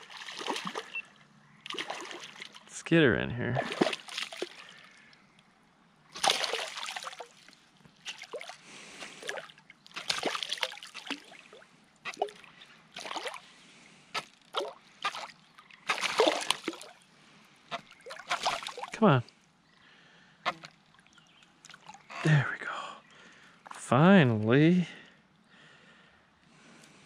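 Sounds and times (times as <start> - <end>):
fish splashing at surface: 0.0 - 0.9, 1.7 - 2.6, 6.2 - 12.4, 13.0 - 13.4, 14.2 - 17.0, 17.7 - 18.9.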